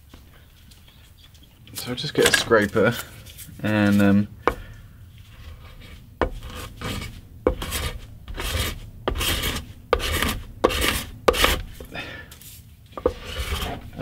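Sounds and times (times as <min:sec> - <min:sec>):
paint scraper scraping wood: 0:04.5 - 0:14.0.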